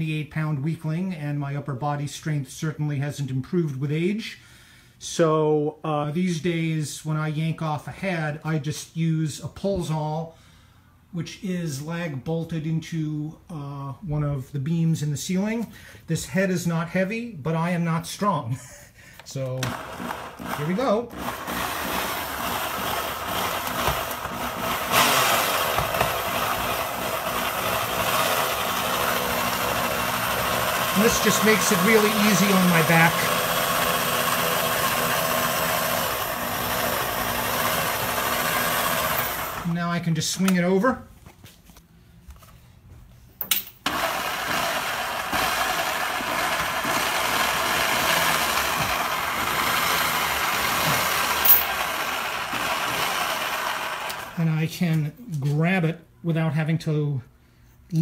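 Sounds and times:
electric winch motor running: 0:19.6 - 0:39.6, 0:43.9 - 0:54.4.

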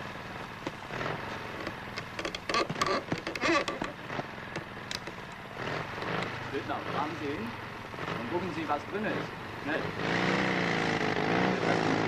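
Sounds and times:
motorcycle engines buzzing: 0:00.0 - 0:12.0
sharp cracks and clicks: 0:01.6 - 0:05.4.

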